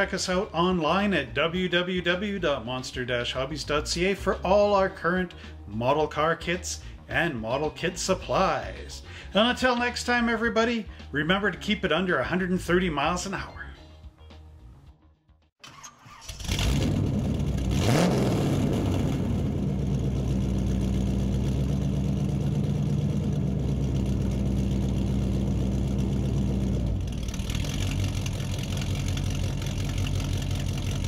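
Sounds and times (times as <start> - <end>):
car engine starting and revving: 15.6 - 31.0.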